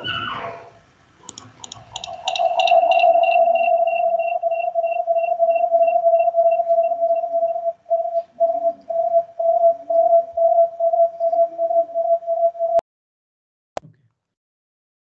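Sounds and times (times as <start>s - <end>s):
faint high beeping: 1.2s - 12.8s
audio feedback howl: 1.8s - 12.8s.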